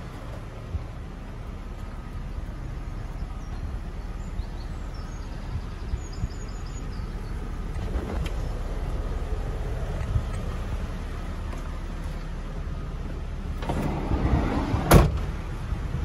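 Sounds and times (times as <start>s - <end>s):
wind buffeting microphone: 0.0s - 12.0s, 13.7s - 16.0s.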